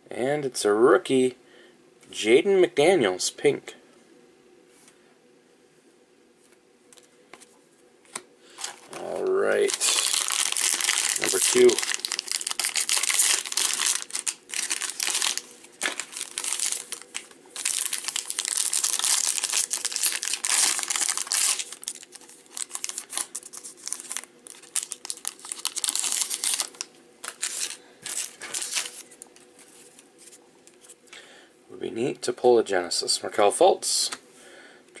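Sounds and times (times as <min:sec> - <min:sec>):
cellophane wrapper crinkling: 0:08.1 - 0:31.0.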